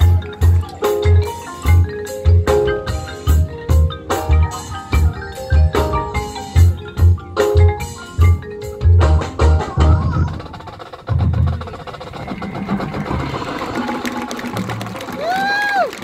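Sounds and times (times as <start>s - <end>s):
mallet percussion pattern: 0.0s - 15.4s
marching band playing: 0.0s - 16.0s.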